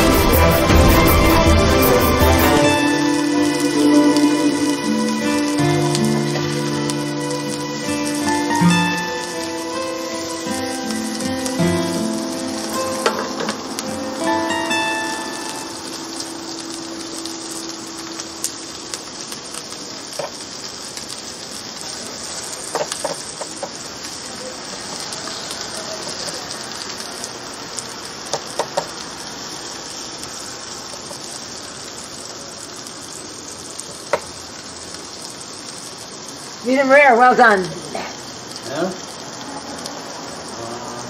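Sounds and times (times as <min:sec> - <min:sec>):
steak sizzling on grill: 0:00.0 - 0:41.0.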